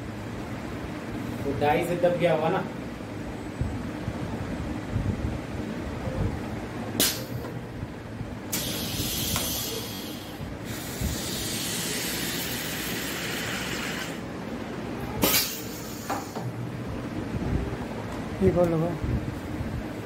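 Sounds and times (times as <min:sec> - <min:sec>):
burst of released air: 0:07.0 - 0:07.4, 0:08.5 - 0:14.2, 0:15.2 - 0:16.4
pneumatic machine hissing: 0:07.0 - 0:07.5, 0:08.5 - 0:14.3, 0:15.2 - 0:16.5.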